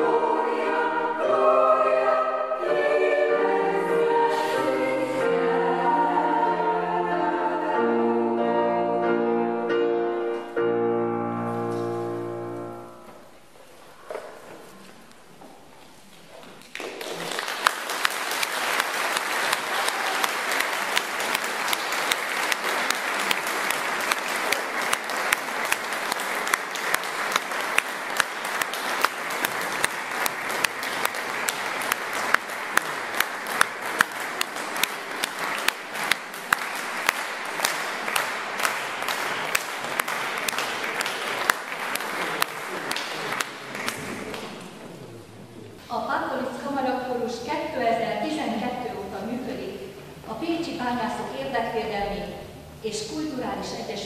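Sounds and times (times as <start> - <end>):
audience applause: 16.6 - 45.2.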